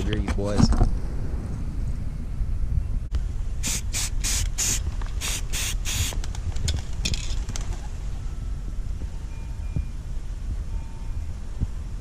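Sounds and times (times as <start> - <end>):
spray paint can spraying: 3.6 - 6.2.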